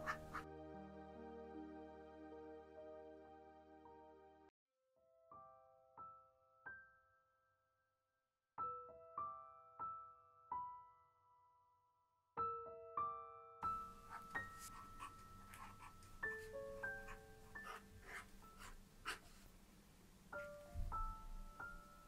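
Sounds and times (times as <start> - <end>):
marker scratching on paper: 0.0 - 0.4, 14.1 - 19.5
soft solo piano music: 12.4 - 18.7, 20.3 - 22.0.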